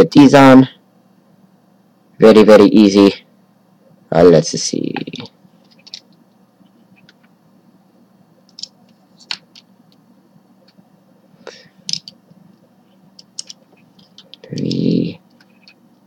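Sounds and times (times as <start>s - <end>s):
plastic puzzle cube pieces clicking: 13.2s - 14.8s
short vocal sound: 14.4s - 15.2s.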